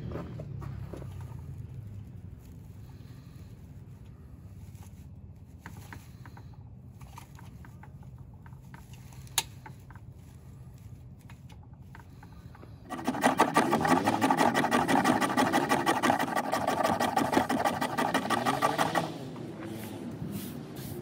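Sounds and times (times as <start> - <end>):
hand drill spindle rasping: 12.9 - 19.2.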